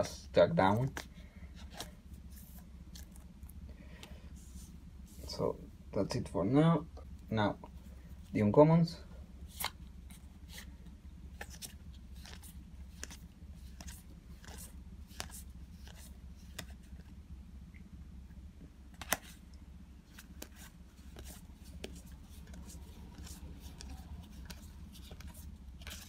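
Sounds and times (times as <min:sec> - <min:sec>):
cards flipping and sliding: 0:00.8 - 0:05.2, 0:09.5 - 0:17.1, 0:18.9 - 0:19.4, 0:20.1 - 0:26.0
card snapping: 0:19.0 - 0:19.3.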